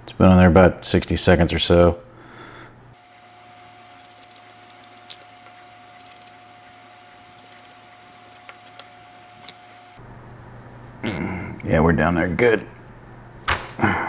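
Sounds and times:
metal nuts spinning off ticking: 3.8 - 9.6.

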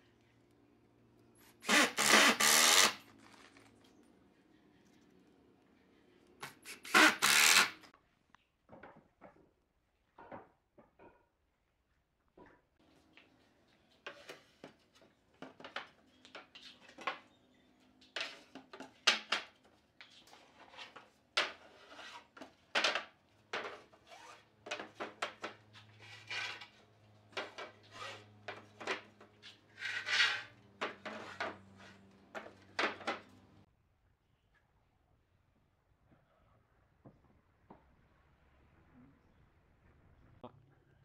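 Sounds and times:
wood-on-wood knocks and clatters: 8.7 - 11.4, 32.3 - 33.4
wooden boards scraping: 27.4 - 33.2.

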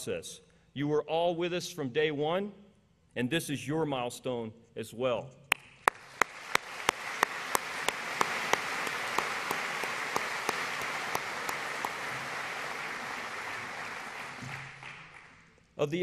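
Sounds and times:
sharp close hand claps: 5.5 - 15.5
audience applauding: 5.8 - 15.6.

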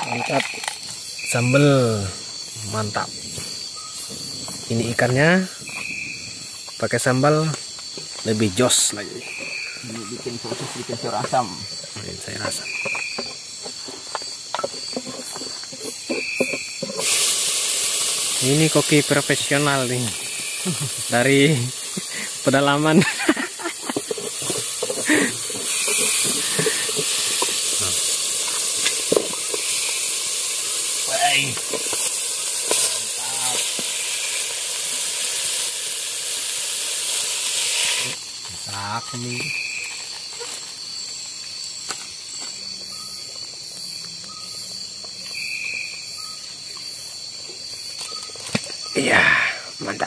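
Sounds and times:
crickets trilling: 0.0 - 50.0
steaming pot hiss: 13.8 - 41.8.

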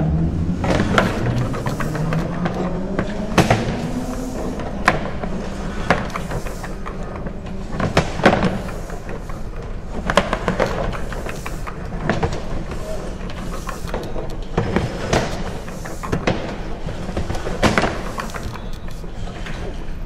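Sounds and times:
low hum: 0.0 - 10.0.

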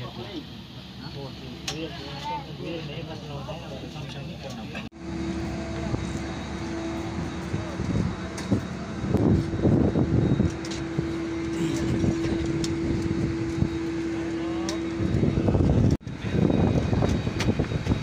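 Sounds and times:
steady whine: 0.0 - 18.0
rumbling machine noise: 3.7 - 18.0.

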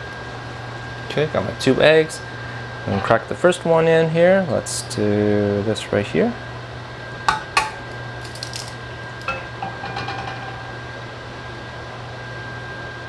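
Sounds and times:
steady low hum: 0.0 - 12.8
egg tapping on frying pan: 7.3 - 7.8.

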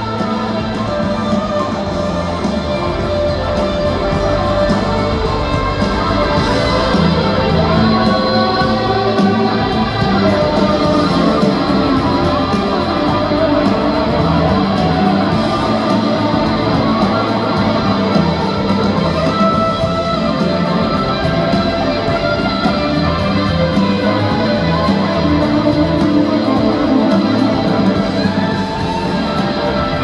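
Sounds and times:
country band playing: 0.0 - 30.0
strummed guitar: 0.0 - 30.0.

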